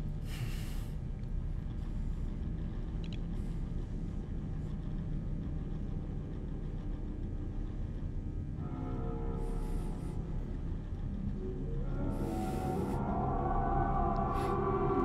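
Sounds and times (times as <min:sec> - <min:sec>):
low rumbling drone: 0:00.0 - 0:15.0.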